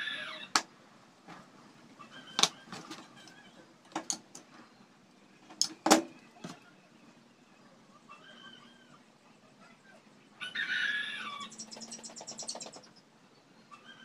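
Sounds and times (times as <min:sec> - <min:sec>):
plastic pieces clicking and tapping: 0:03.9 - 0:04.5.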